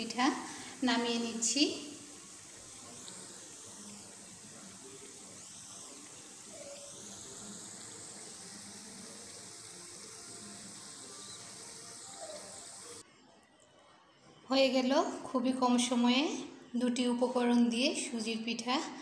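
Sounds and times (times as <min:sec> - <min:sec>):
hot oil sizzling in a pan: 0:00.0 - 0:13.0.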